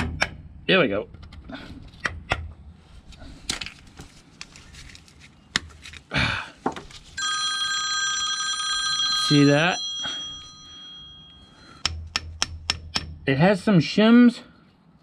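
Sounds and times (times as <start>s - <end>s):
high multi-tone ringing: 7.2s - 11.8s
metal taps and knocks: 11.8s - 13.2s.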